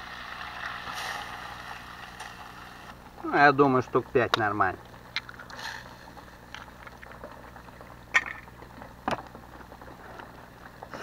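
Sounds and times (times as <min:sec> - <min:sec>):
butter sizzling in a saucepan: 0:00.0 - 0:02.8.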